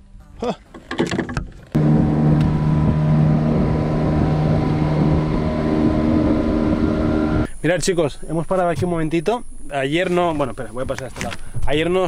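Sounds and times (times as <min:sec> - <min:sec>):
outboard motor running: 0:00.8 - 0:07.5
wind on microphone: 0:01.8 - 0:07.5.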